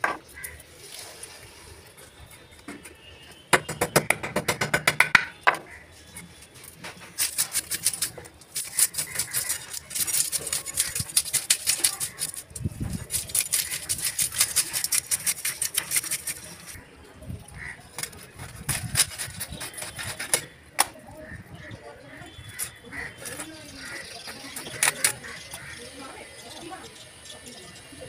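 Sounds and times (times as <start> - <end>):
knife scraping fish scales: 6.1 - 16.8, 17.9 - 20.6, 22.5 - 25.7.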